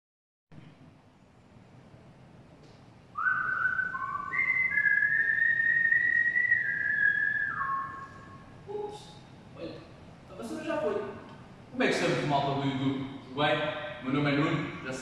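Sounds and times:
man whistling a tune: 3.2s - 8.4s.

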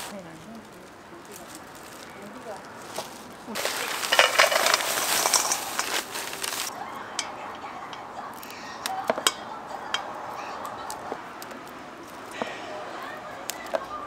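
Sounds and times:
food sizzling in frying oil: 3.6s - 6.7s
utensils and dishes clinking: 3.6s - 8.3s.

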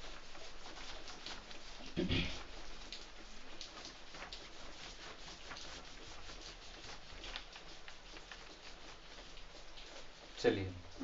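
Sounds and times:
whiteboard being wiped: 0.0s - 11.0s.

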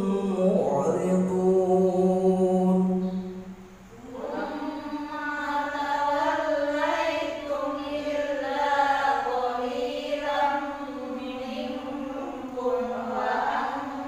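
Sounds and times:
man reciting melodically: 0.0s - 3.4s.

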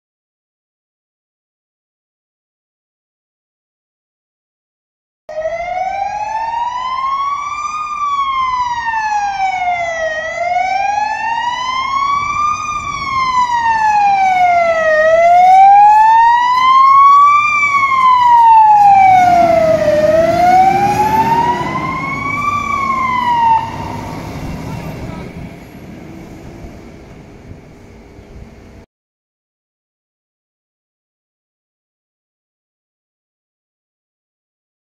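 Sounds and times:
fire engine siren wailing: 5.3s - 27.9s
truck engine rumble: 5.5s - 28.8s.

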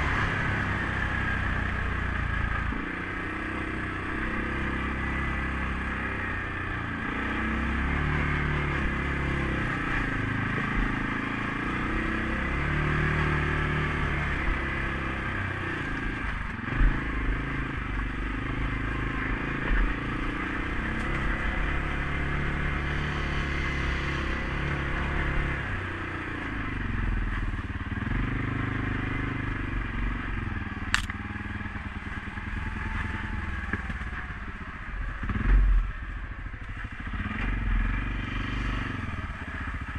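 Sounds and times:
atv engine running: 0.0s - 39.9s
sharp click: 30.9s - 31.2s.

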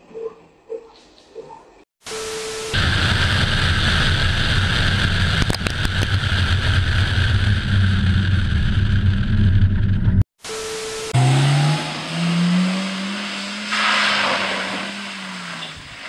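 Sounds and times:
car engine running hard: 2.8s - 14.1s.

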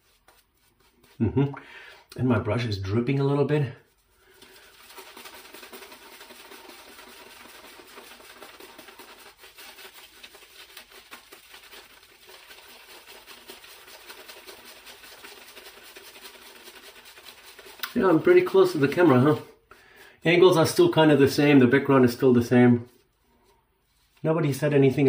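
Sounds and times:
shaving brush scrubbing lather: 0.0s - 1.4s, 3.1s - 19.5s.

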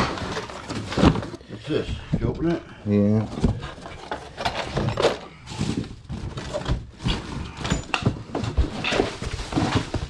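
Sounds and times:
items knocking in boxes: 0.0s - 1.4s, 3.3s - 10.0s
rustling: 5.4s - 10.0s.

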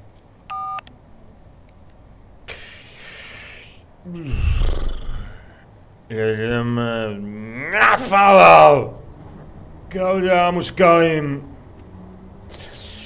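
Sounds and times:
phone keypad beep: 0.5s - 0.8s
man exhaling: 2.5s - 5.6s, 12.5s - 13.0s
man groaning: 4.0s - 5.5s, 7.1s - 8.8s.

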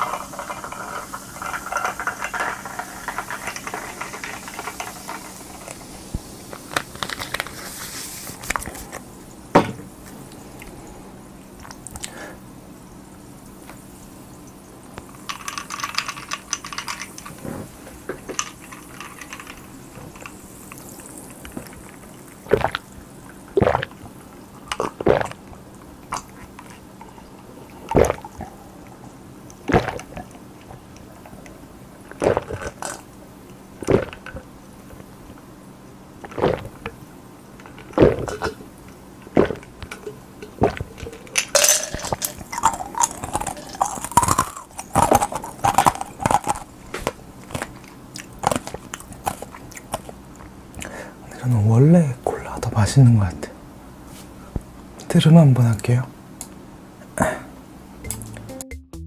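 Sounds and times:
ice rattling in glass: 0.0s - 6.0s, 15.1s - 17.4s, 18.2s - 22.0s, 39.6s - 46.7s
person swallowing loudly: 20.0s - 28.9s, 29.6s - 30.8s, 32.1s - 33.1s, 33.8s - 35.1s, 36.2s - 37.0s, 37.7s - 46.7s.

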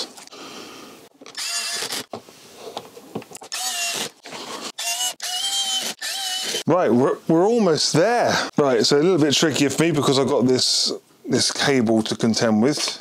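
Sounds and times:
electric screwdriver motor whining: 1.3s - 2.1s, 3.4s - 6.6s.

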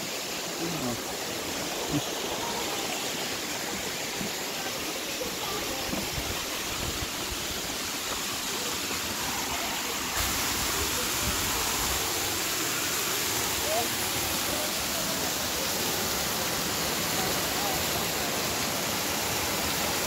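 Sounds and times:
waterfall roaring: 0.0s - 20.0s.

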